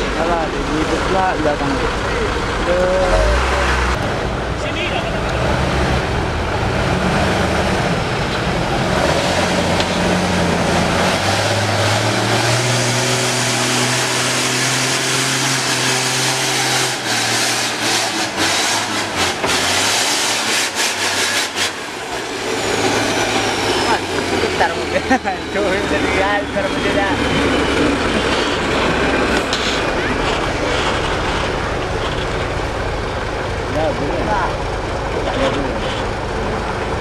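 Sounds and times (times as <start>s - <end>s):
truck diesel engine pulling: 0.0s - 37.0s.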